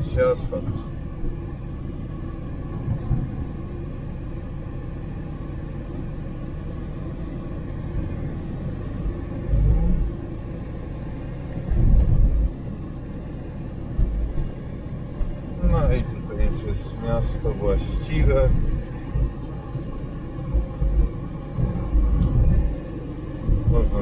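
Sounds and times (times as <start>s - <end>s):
car driving low rumble: 0.0s - 24.0s
low thumps: 11.6s - 12.6s, 17.9s - 24.0s.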